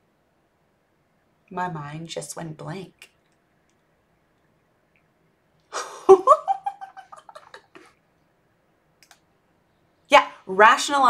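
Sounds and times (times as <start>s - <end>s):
woman laughing and giggling: 5.7s - 8.0s.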